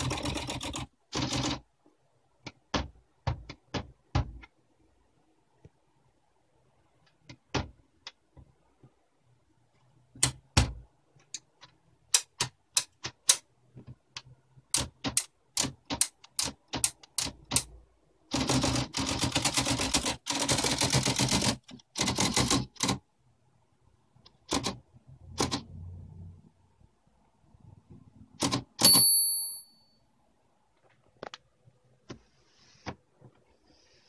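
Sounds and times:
typewriter typing: 0.0 - 1.6, 14.7 - 23.0, 24.3 - 25.7, 28.4 - 28.9.

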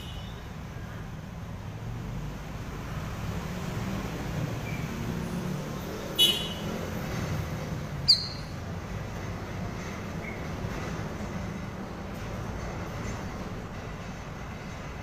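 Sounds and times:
bird calls short and high: 8.0 - 8.6.

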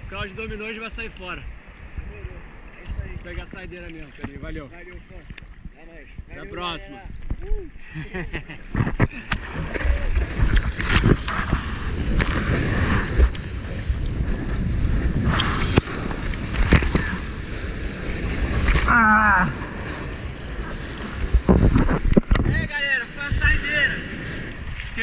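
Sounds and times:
wind buffeting microphone: 0.0 - 25.0
seawater splashing and rushing: 8.7 - 25.0.

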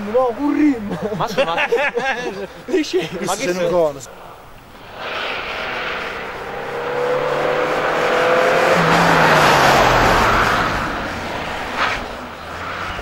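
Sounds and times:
race car engine revving past: 4.1 - 13.0.

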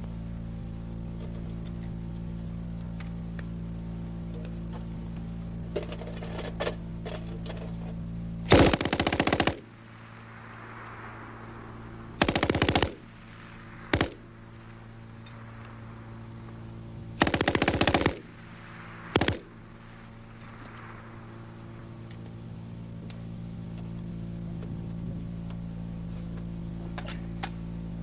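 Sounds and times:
steady low hum: 0.0 - 28.0
machine gun automatic fire: 8.5 - 9.7, 12.2 - 13.1, 13.9 - 14.3, 17.2 - 18.3, 19.1 - 19.6.

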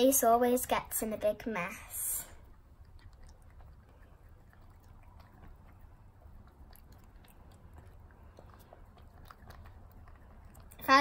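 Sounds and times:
cat licking and lapping: 1.5 - 11.0.

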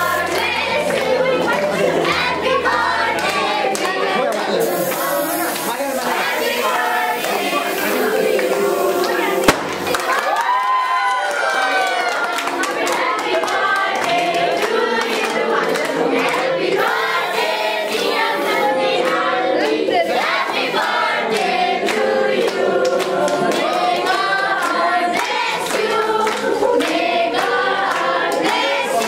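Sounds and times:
crowd singing birthday song: 0.0 - 29.0
hand clapping: 0.3 - 6.2, 8.2 - 10.6, 12.0 - 16.5, 19.0 - 29.0.

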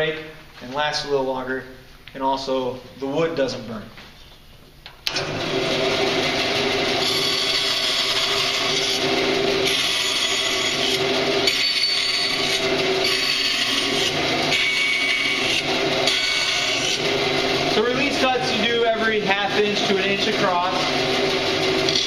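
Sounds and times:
bandsaw running: 5.1 - 22.0.

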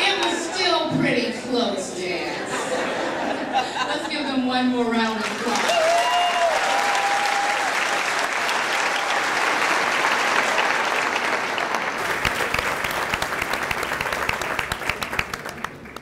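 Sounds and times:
audience applauding: 5.2 - 16.0.

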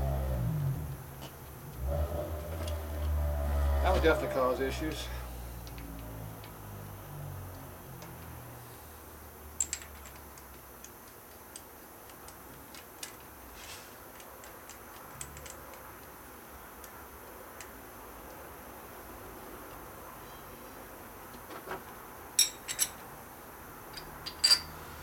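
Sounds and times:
hands clicking on engine parts: 5.6 - 6.6, 7.5 - 8.5, 9.6 - 18.4.

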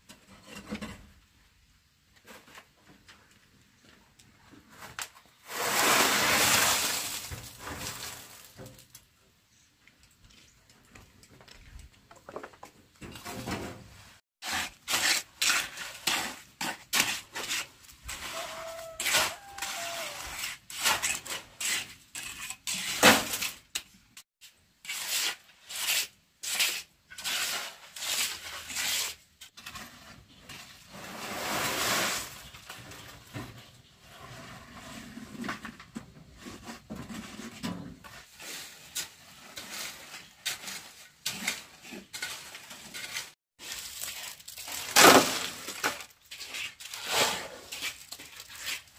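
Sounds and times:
trowel scraping wet concrete: 4.8 - 8.4, 14.4 - 32.7, 34.0 - 44.3, 44.9 - 48.9.

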